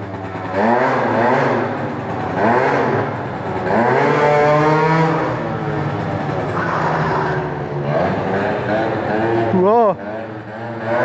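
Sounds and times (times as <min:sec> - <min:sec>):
scooter engine revving hard: 0:00.0 - 0:11.0.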